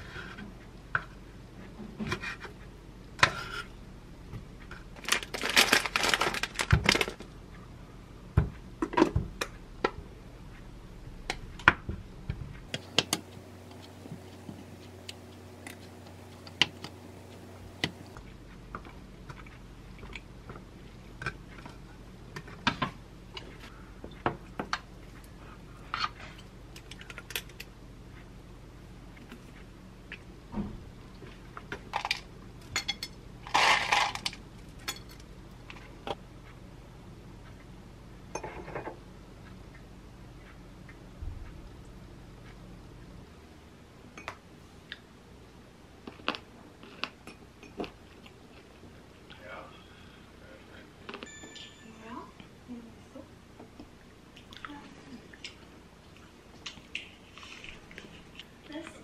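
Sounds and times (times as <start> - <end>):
low steady hum: 0.0 - 59.0
food chunks rattling into bowl: 5.0 - 7.2, 33.5 - 34.4.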